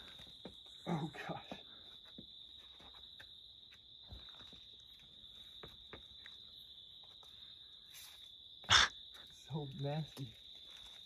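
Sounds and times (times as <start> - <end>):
hands and shoes tapping on rock: 1.5 - 6.4.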